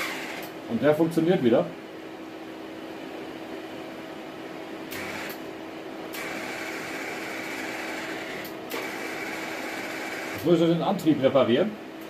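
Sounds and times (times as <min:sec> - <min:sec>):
wire-feed motor whine: 0:00.0 - 0:00.6, 0:04.9 - 0:05.4, 0:06.1 - 0:11.6.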